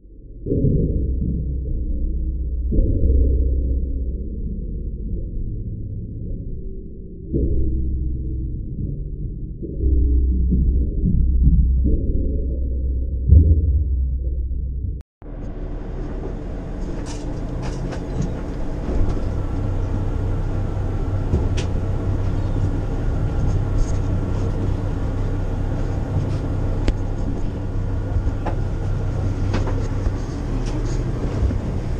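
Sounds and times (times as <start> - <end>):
boat engine drone: 6.4 - 31.9.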